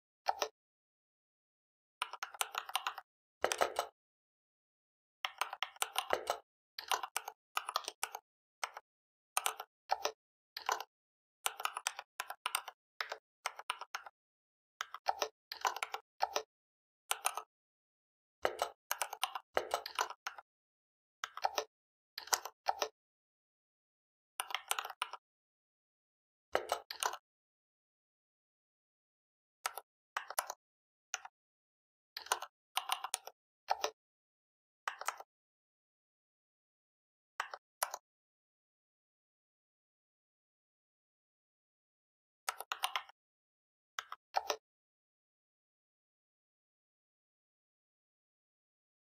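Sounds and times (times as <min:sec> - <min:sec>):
keyboard typing: 0:02.0 - 0:04.0, 0:05.2 - 0:08.8, 0:14.8 - 0:16.5, 0:18.4 - 0:20.4, 0:21.2 - 0:23.0, 0:26.6 - 0:27.2, 0:29.7 - 0:30.6, 0:32.2 - 0:34.0, 0:42.5 - 0:43.2, 0:44.0 - 0:44.6.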